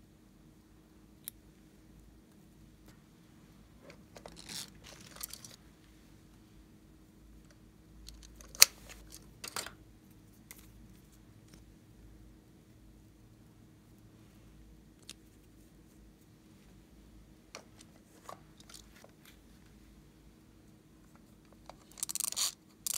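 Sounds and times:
crinkly plastic rustles: 0:04.2 - 0:05.6.

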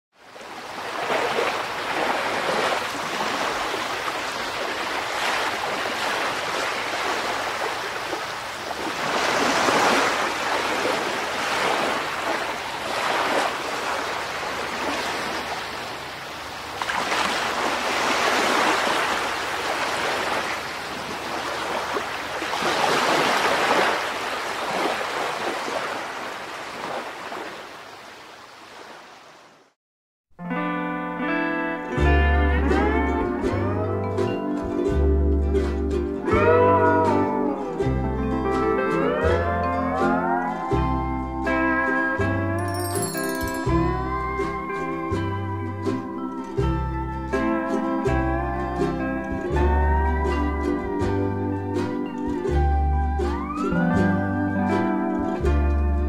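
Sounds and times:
sea waves washing onto shore: 0:00.2 - 0:29.6.

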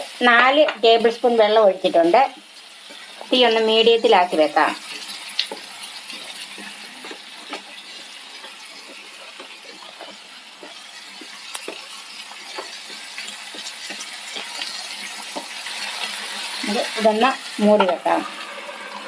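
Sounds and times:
vegetables sizzling in a pan: 0:00.0 - 0:19.0.

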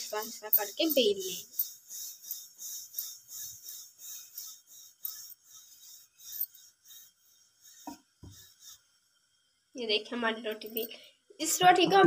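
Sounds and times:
rolling pin rasping on dough: 0:00.0 - 0:08.8.

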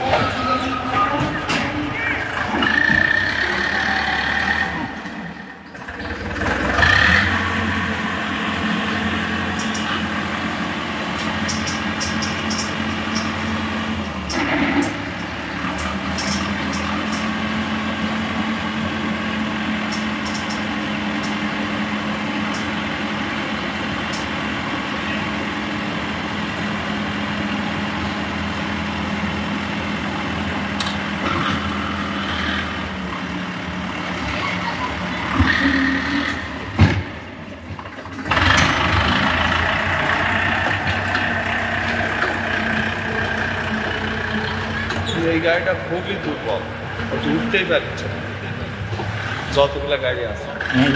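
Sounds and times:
tractor diesel engine running: 0:00.0 - 0:50.9.

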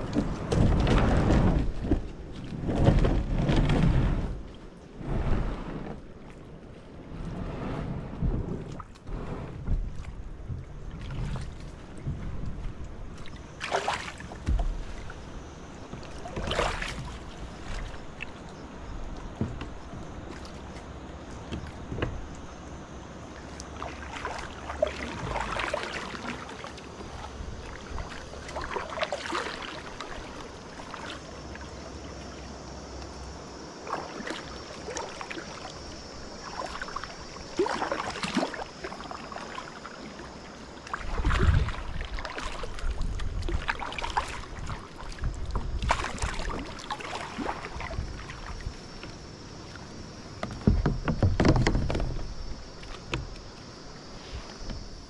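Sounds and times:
wind rumbling on microphone: 0:00.0 - 0:13.6, 0:40.9 - 0:55.0
river water splashing at the bank: 0:00.0 - 0:55.0.

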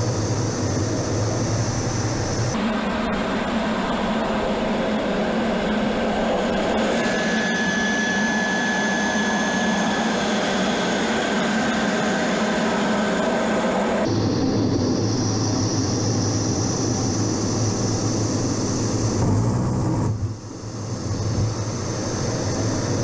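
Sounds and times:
jet engines and airflow rushing: 0:00.0 - 0:23.0
thin high whine: 0:02.5 - 0:23.0.

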